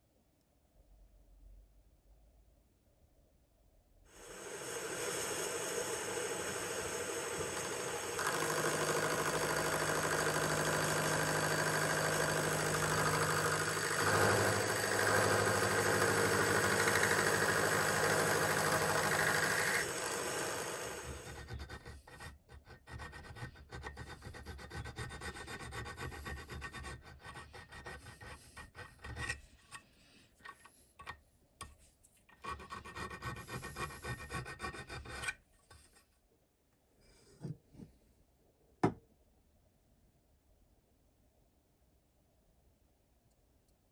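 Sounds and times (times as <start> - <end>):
milling machine cutting metal: 4.2 - 21.4
hand file strokes on metal: 10.9 - 30.8, 32.4 - 36.0.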